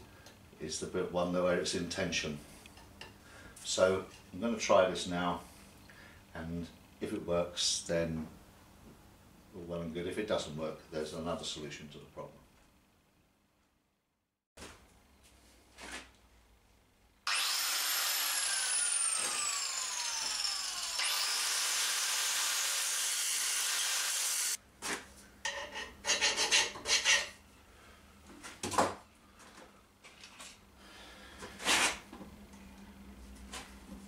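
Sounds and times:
angle grinder grinding metal: 17.3 - 24.6
metal scrapes and knocks: 25.5 - 27.4.

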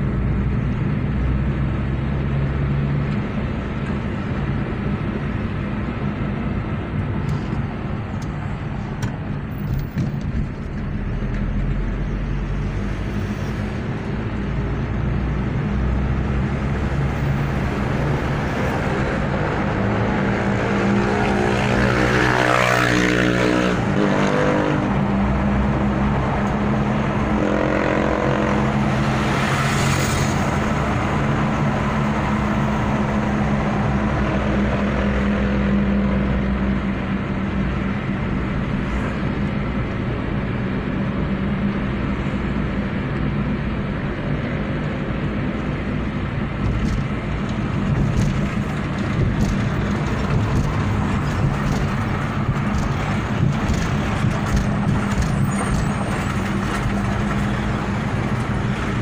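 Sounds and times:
car engine hum: 0.0 - 59.0
tyre noise: 46.5 - 59.0.

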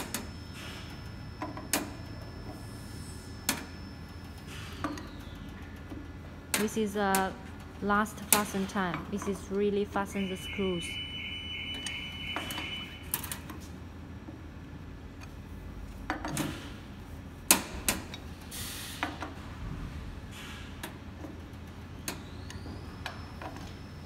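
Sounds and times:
high steady tone: 9.7 - 13.2.

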